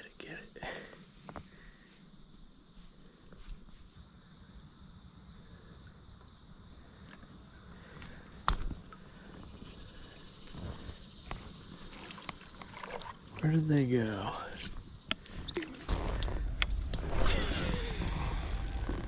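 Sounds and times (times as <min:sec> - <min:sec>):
high-pitched insect chorus: 0:00.0 - 0:19.0.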